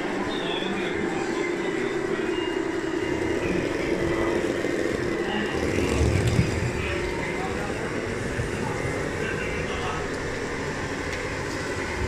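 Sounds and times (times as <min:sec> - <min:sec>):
model motor hum: 0:03.0 - 0:12.0.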